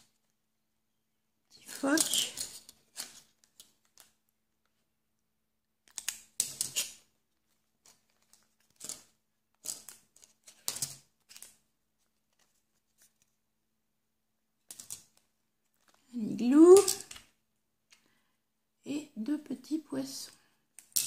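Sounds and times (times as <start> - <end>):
paper rustling: 5.9 - 13.4, 14.7 - 16.1.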